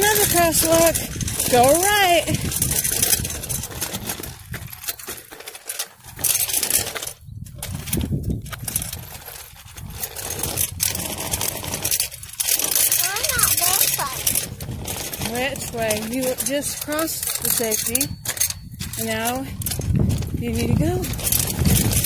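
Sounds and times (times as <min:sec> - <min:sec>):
wind on microphone: 0:00.0 - 0:04.8, 0:07.2 - 0:12.4, 0:17.4 - 0:22.0
bicycle rattling and rolling: 0:00.0 - 0:22.0
clicks and clatters: 0:00.0 - 0:22.0.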